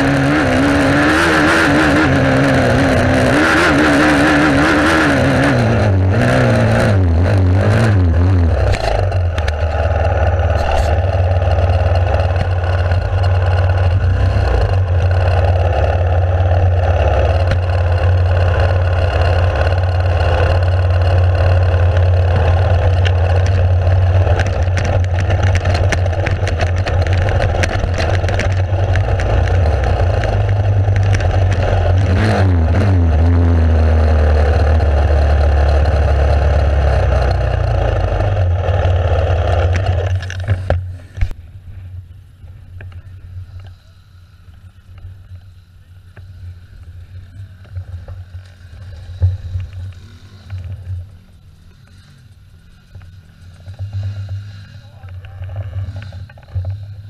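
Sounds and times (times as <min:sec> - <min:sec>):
motorcycle engine running: 0:00.0 - 0:57.0.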